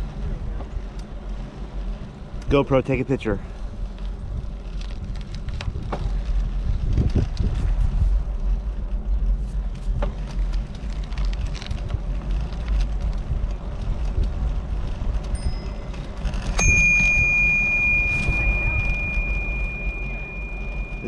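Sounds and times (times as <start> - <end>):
wind rushing over microphone: 3.7 - 10.2, 11.5 - 21.0
bicycle bell ringing: 15.3 - 21.0.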